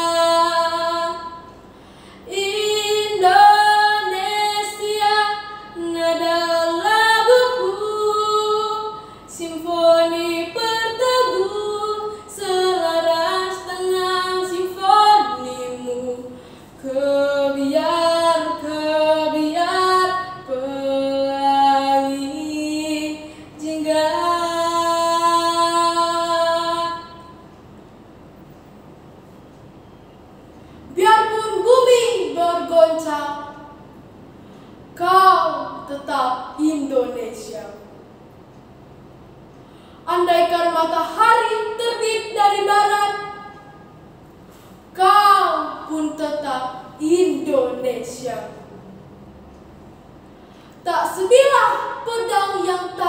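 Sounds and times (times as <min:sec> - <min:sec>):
girl singing unaccompanied: 0:00.0 - 0:01.5, 0:02.3 - 0:27.5, 0:30.9 - 0:33.8, 0:35.0 - 0:37.9, 0:40.1 - 0:43.8, 0:44.9 - 0:48.6, 0:50.8 - 0:53.0.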